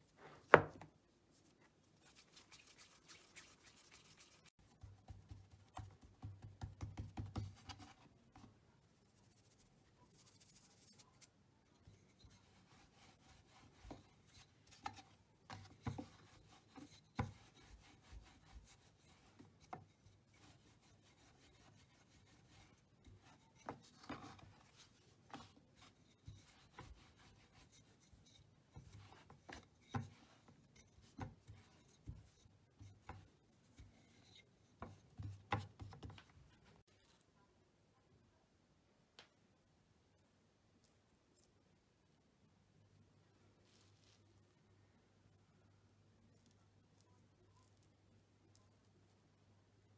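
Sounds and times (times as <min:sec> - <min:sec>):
hands rubbing dough: 0:00.0 - 0:37.1, 0:43.5 - 0:44.5.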